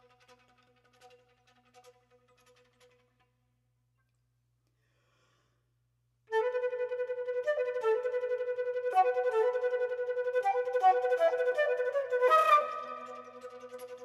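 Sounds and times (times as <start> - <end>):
flute playing pulsed notes: 6.3 - 14.0.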